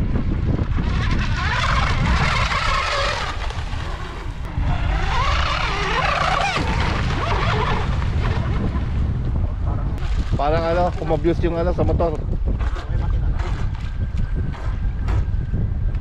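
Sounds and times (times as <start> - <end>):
wind rumble on microphone: 0.0 - 16.0
boat motor whining: 0.6 - 9.0.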